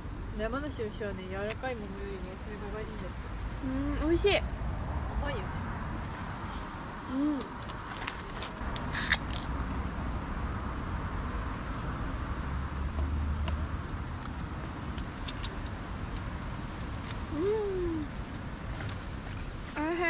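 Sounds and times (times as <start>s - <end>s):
low background rumble: 0.0s - 20.0s
person humming: 3.6s - 4.0s, 7.1s - 7.6s, 17.3s - 18.1s.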